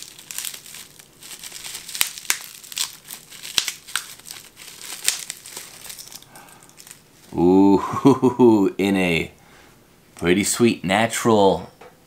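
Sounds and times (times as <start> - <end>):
plastic bag crinkling: 0.0 - 7.4.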